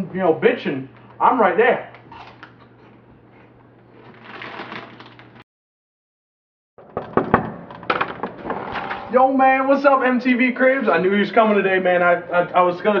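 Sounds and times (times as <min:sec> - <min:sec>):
plastic snack bag crinkling: 0:04.0 - 0:05.4.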